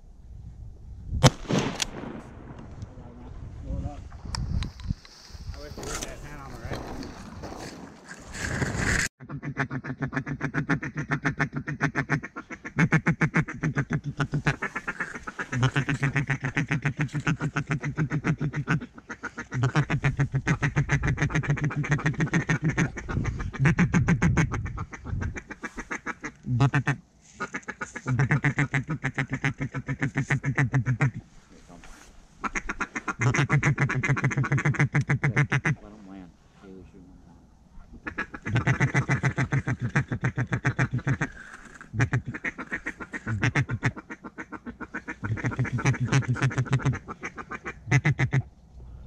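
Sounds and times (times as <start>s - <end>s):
duck call rapid quacks: 9.2s - 31.2s, 32.4s - 35.8s, 38.0s - 48.5s.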